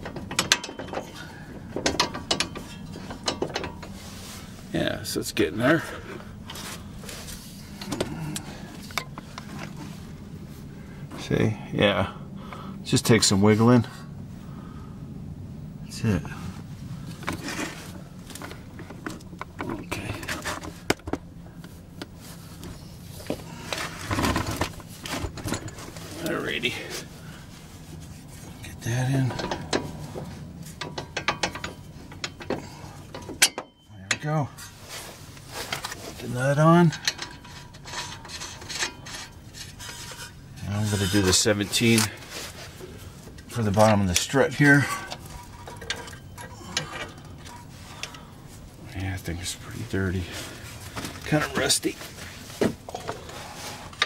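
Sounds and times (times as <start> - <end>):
tools clicking on metal parts: 0.0 - 1.2, 1.8 - 3.9, 30.8 - 34.2
metal clicking and clunking: 0.0 - 4.0, 23.3 - 26.1, 29.2 - 34.8, 36.8 - 42.2, 43.3 - 48.2
low steady hum: 0.0 - 54.0.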